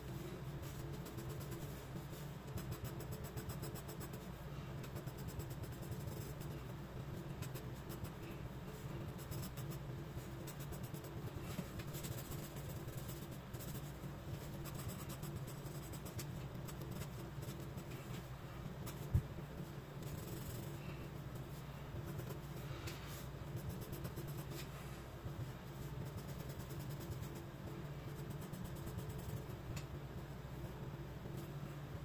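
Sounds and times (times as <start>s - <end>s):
low steady hum: 0.0s - 32.0s
pencil scratching on paper: 8.8s - 17.9s, 25.8s - 27.4s.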